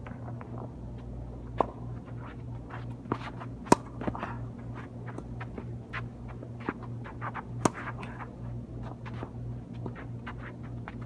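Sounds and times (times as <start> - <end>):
steady low hum: 0.0 - 11.0
racket hitting ball: 3.1 - 4.4, 5.1 - 8.3.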